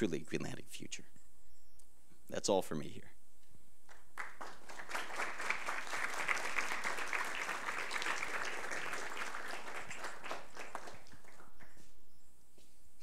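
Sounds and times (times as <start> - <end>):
audience applauding: 3.9 - 11.9.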